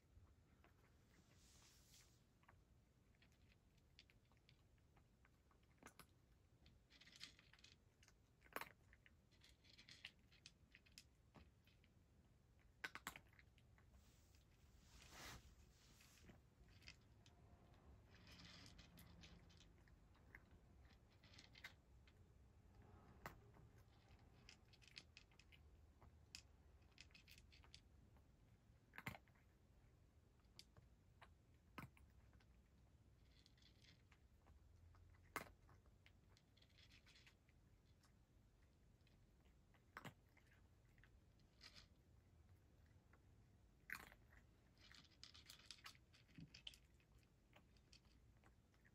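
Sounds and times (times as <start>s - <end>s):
cat crunching dry kibble: 2.4s - 14.3s, 15.8s - 34.6s, 35.2s - 48.9s.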